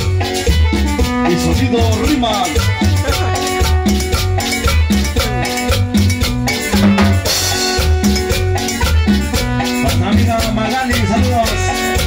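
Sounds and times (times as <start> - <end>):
drum kit beat: 0.0 - 12.0
keyboard notes and bass line: 0.0 - 12.0.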